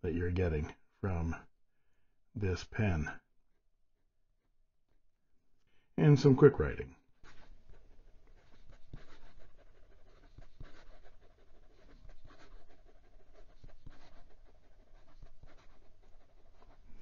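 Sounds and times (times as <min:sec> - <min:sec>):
pen nib scratching on paper: 0:07.1 - 0:17.0.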